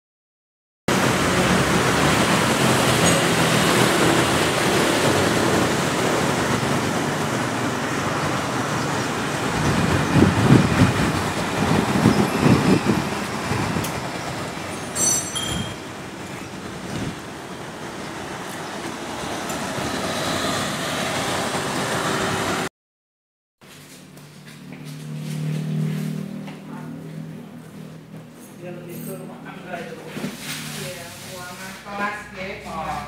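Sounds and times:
road traffic rush: 0:00.9 - 0:22.7, 0:23.6 - 0:33.0
vehicle passing: 0:00.9 - 0:22.7, 0:23.9 - 0:33.0
brief high-pitched tone: 0:15.0 - 0:15.9.

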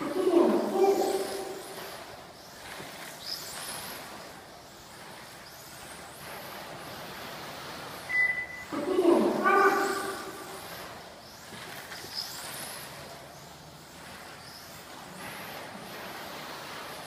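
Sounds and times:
rc car electric motors whining: 0:00.0 - 0:06.5, 0:07.9 - 0:15.2.

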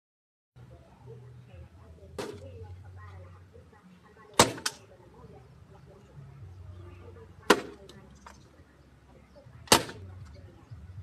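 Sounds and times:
plastic bottle smack: 0:04.4 - 0:04.8, 0:09.7 - 0:10.0.

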